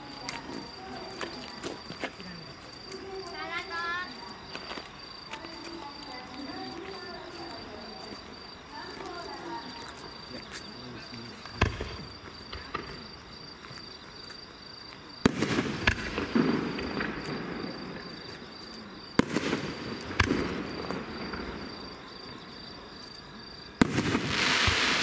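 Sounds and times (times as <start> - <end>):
rolling echo: 11.4 - 13.0, 15.3 - 18.5, 19.1 - 22.5, 23.8 - 25.0
firework shells bursting: 15.2 - 18.1, 19.2 - 21.8, 23.8 - 25.0.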